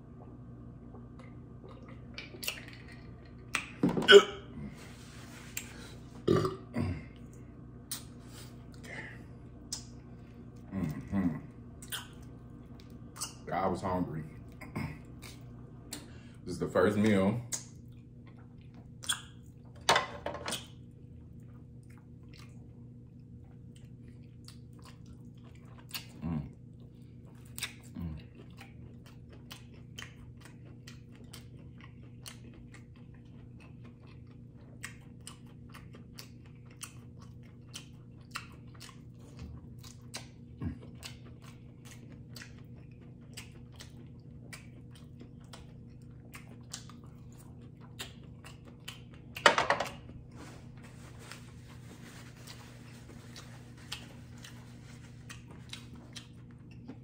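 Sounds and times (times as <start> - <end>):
low hum: 0.0 - 20.2
person chewing: 0.2 - 13.5, 14.4 - 16.3, 17.5 - 19.7, 20.5 - 57.0.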